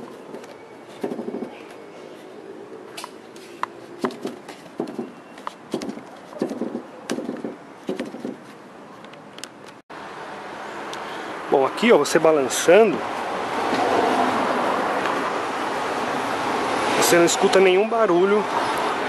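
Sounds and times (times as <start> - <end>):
car tailgate knocks and rattles: 1.0 - 1.6, 4.0 - 8.5.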